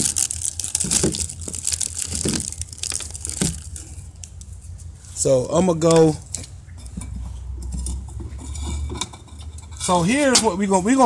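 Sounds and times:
plastic wrapping crinkling: 0:00.0 - 0:04.6.

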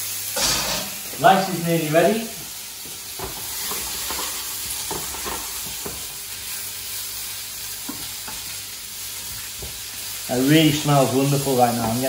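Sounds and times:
food sizzling in a wok: 0:00.0 - 0:12.0
spatula scraping a pan: 0:03.4 - 0:05.7.

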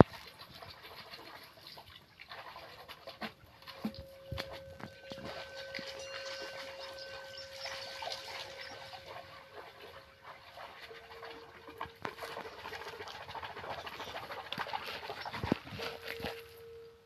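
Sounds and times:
lower-pitched singing bowl: 0:03.7 - 0:14.0, 0:15.1 - 0:17.0
singing bowl ringing: 0:03.8 - 0:13.1, 0:15.4 - 0:17.0.

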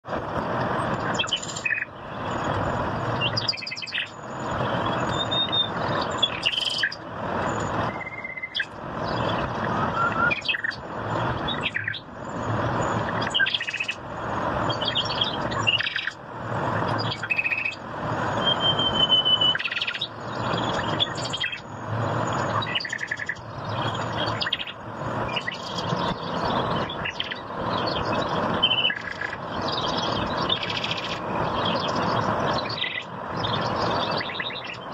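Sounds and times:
small birds chirping: 0:00.9 - 0:34.9.

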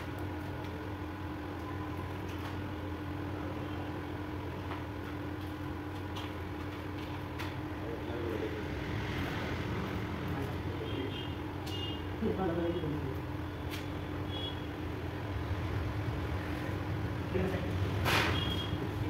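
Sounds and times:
steady background hum: 0:00.0 - 0:19.0
people talking: 0:12.2 - 0:13.2.

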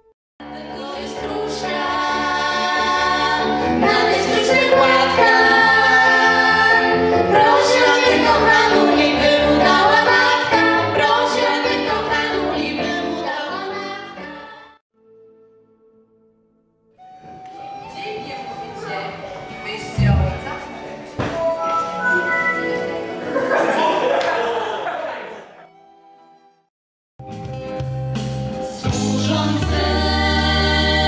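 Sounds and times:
children's choir singing: 0:00.4 - 0:14.8, 0:20.0 - 0:21.5, 0:28.9 - 0:31.0.

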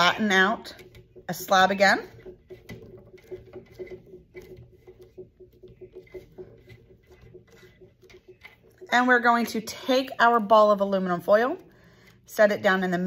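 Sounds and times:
hands patting clay on wood: 0:00.7 - 0:09.5.

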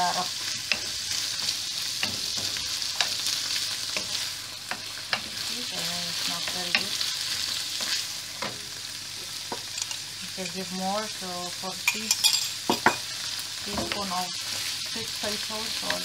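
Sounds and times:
vegetables sizzling in oil: 0:00.0 - 0:16.0
spatula tapping a pan: 0:00.6 - 0:05.4.

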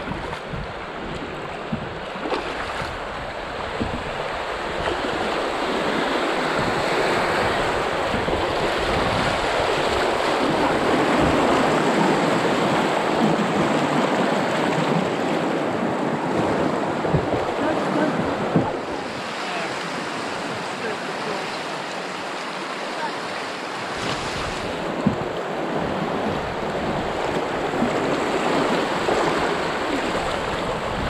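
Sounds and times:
whitewater rushing and splashing: 0:00.0 - 0:31.0.

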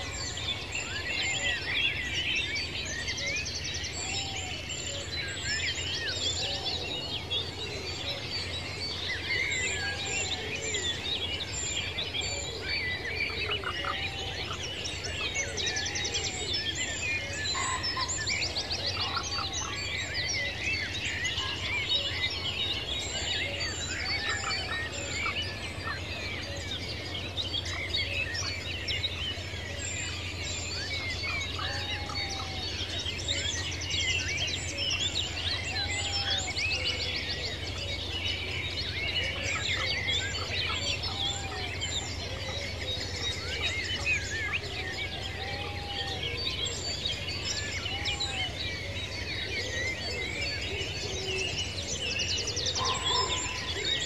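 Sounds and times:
birds chirping and trilling: 0:00.0 - 0:54.0
low arching bird call: 0:47.8 - 0:54.0.

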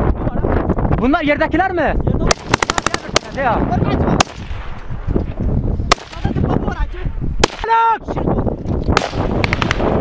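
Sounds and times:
wind rumble on microphone: 0:00.0 - 0:10.0
sharp gunshots: 0:02.2 - 0:04.8, 0:05.8 - 0:06.5, 0:07.4 - 0:07.8, 0:08.9 - 0:10.0.

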